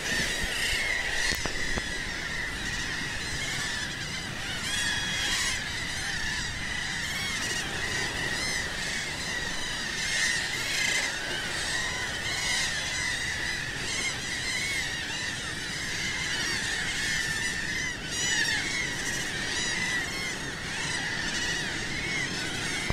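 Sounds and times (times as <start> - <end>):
steady rushing noise: 0.0 - 13.8
seabirds honking calls: 0.0 - 22.9.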